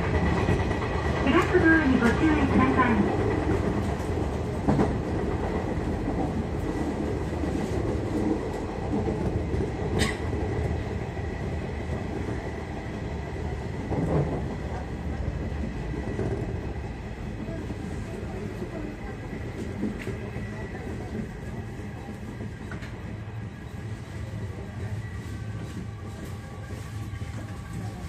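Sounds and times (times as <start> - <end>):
sharp clicks of train: 0.0 - 6.4, 7.5 - 10.6, 22.1 - 23.1
train wheels rumbling on rail: 0.0 - 28.0.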